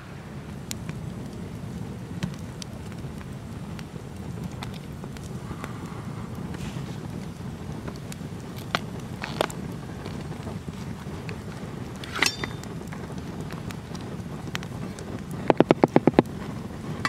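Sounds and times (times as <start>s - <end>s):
campfire crackling and hissing: 0.0s - 17.0s
brief metallic ring: 12.1s - 12.6s.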